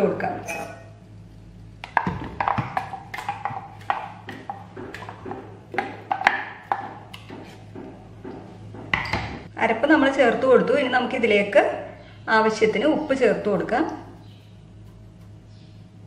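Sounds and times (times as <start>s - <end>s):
utensil knocking on plastic jar: 1.8s - 9.0s.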